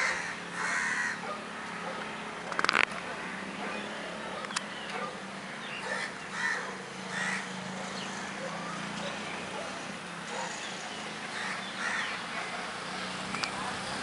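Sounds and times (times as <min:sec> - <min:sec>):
crows cawing: 0:00.0 - 0:02.0, 0:05.9 - 0:08.4, 0:11.3 - 0:12.2.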